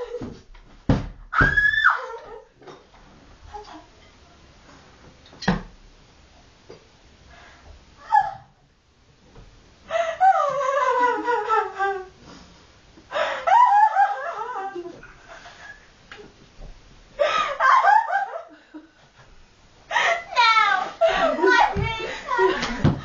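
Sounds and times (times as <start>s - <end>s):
girl laughing: 9.9s - 12.1s, 13.1s - 15.8s, 17.2s - 18.8s, 19.9s - 23.0s.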